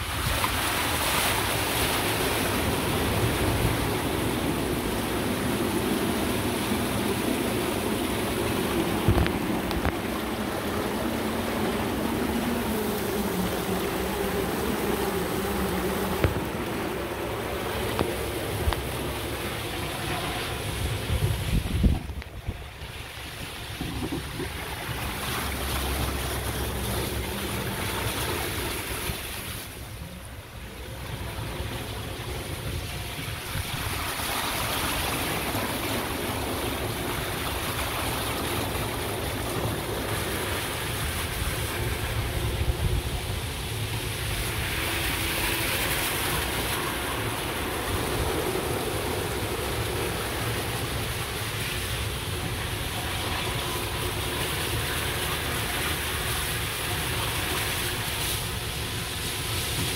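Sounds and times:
tyres rushing through water: 0.0s - 59.9s
cart motor humming: 8.4s - 22.3s.

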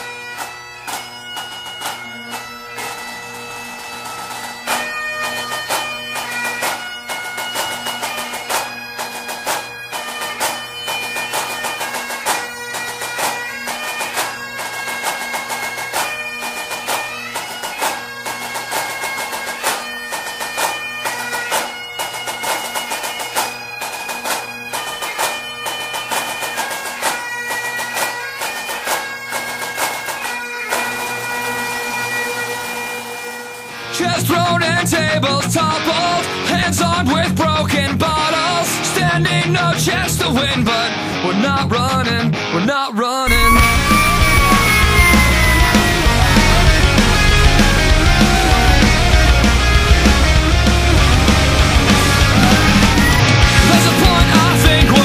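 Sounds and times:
bagpipes playing melody: 0.0s - 36.7s, 43.3s - 55.0s
drum strikes: 43.3s - 55.0s.

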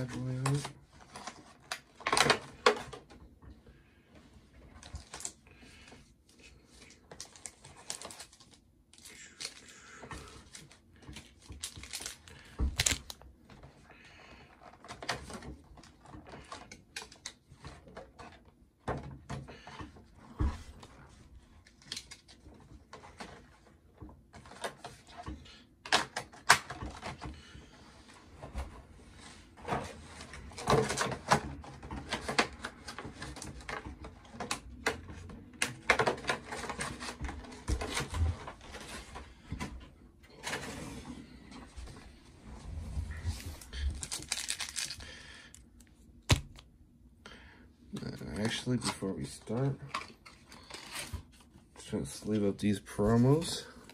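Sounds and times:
cardboard boxes and foil packs rustling: 4.7s - 13.2s, 28.4s - 42.1s, 43.1s - 46.6s.

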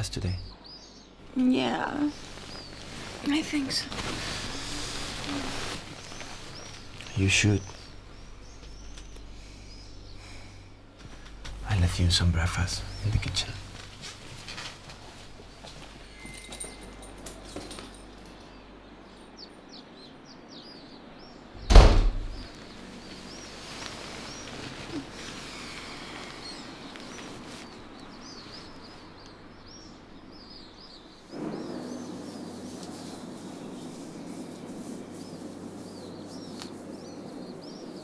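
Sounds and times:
room hiss: 0.0s - 38.0s
small birds chirping: 0.0s - 38.0s
door shutting thud: 21.6s - 22.4s.

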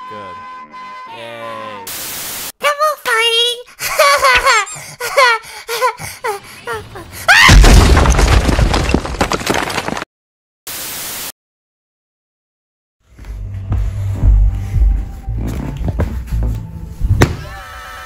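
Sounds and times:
tv static hiss: 1.9s - 2.5s, 10.7s - 11.3s.

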